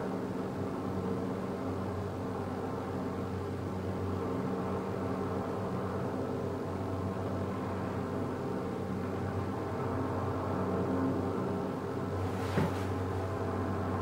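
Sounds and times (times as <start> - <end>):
steady engine drone: 0.0 - 14.0
faint wash of noise: 11.7 - 14.0.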